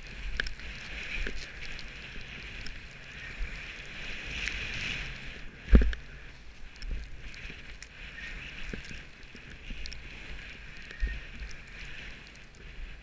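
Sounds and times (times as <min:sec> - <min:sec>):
skis hissing on snow: 0:00.0 - 0:13.0
wind on microphone: 0:00.0 - 0:13.0.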